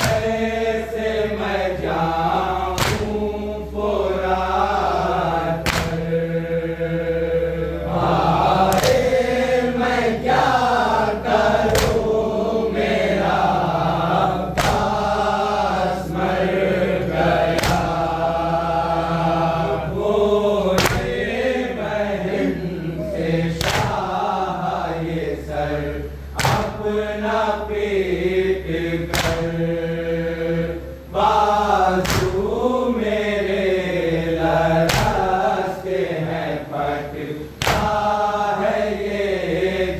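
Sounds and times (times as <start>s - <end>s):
chest-beating slaps: 0.0s - 0.4s, 2.7s - 3.3s, 5.6s - 6.1s, 8.6s - 9.2s, 11.6s - 12.2s, 14.5s - 15.1s, 17.5s - 18.1s, 20.8s - 21.3s, 23.0s - 24.0s, 26.4s - 26.8s, 29.1s - 29.5s, 32.0s - 32.5s, 34.9s - 35.3s, 37.6s - 38.0s
men chanting a lament: 0.0s - 39.9s.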